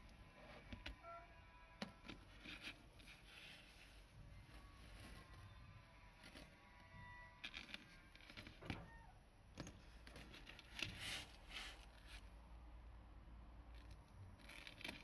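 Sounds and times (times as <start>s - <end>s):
gloved hand rustling: 1.8s - 12.5s.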